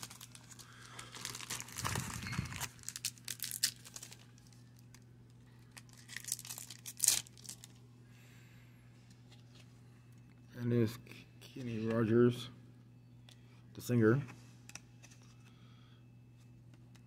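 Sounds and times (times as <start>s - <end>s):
foil wrapper crinkling and tearing: 0.0s - 5.0s, 5.6s - 7.8s.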